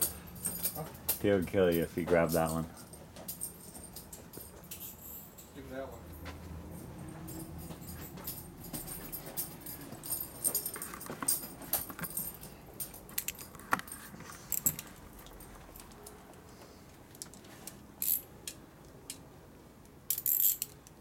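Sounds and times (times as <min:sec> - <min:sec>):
metal hand tools clinking: 0:00.0 - 0:05.6, 0:07.2 - 0:16.1.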